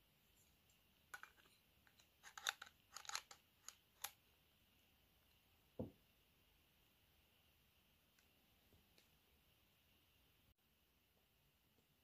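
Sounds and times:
soft thump: 5.8 - 6.0.

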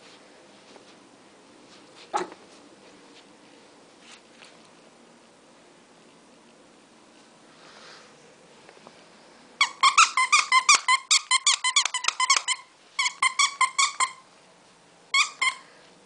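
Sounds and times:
squeaky pet toy squeaking: 9.6 - 14.2, 15.1 - 15.6.

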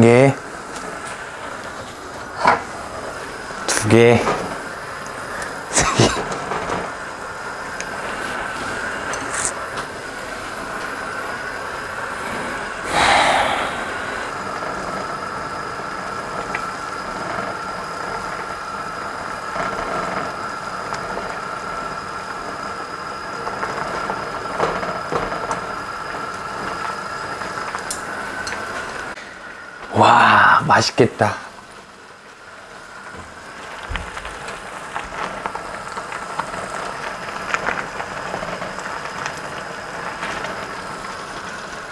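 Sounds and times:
gas burner hiss: 0.0 - 41.9.

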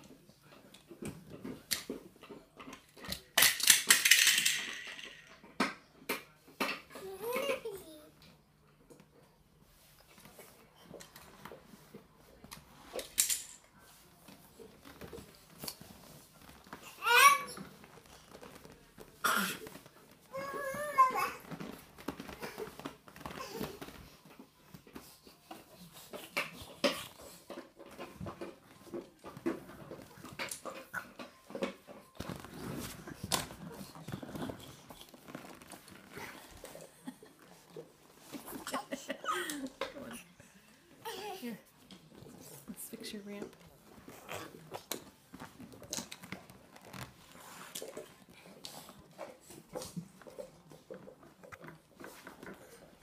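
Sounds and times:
toy cars rattling on wood: 3.3 - 5.6
rustling: 31.1 - 40.0.

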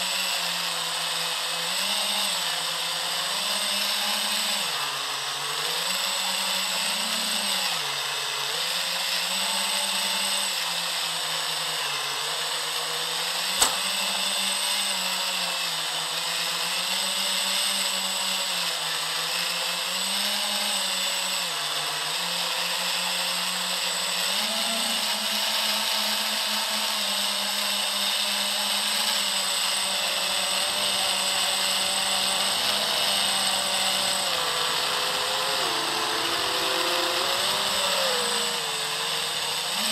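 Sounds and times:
drone motors whining: 1.0 - 15.1, 23.8 - 39.9
sharp click: 13.6 - 14.0.

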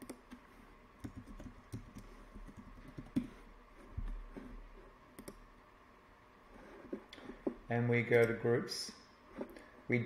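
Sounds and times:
computer keyboard typing: 1.0 - 3.4.

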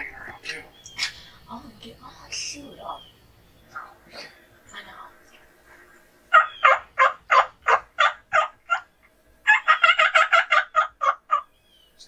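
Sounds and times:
wild turkey yelping: 6.3 - 11.9.

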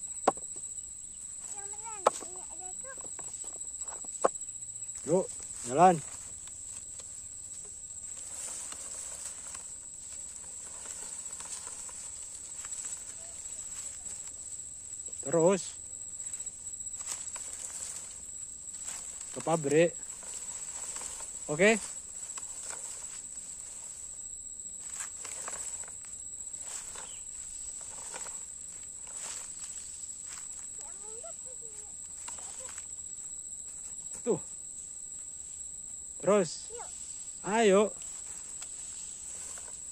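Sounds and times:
high insect drone: 0.0 - 39.9
footsteps through dry leaves: 4.9 - 15.2, 16.1 - 34.1, 37.9 - 39.9
dry leaves crackling and rustling: 4.9 - 34.0, 36.7 - 39.9
toy truck dragged over leaves: 18.8 - 24.0.

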